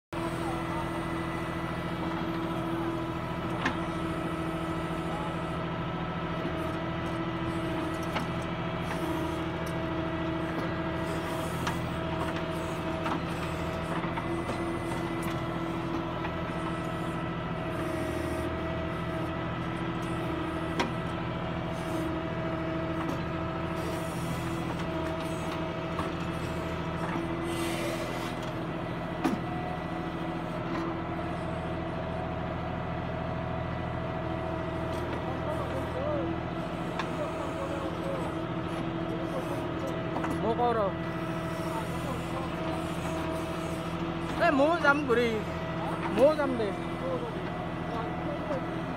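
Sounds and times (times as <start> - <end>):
diesel engine running under load: 0.0 - 48.9
hydraulic arm whine: 0.1 - 48.9.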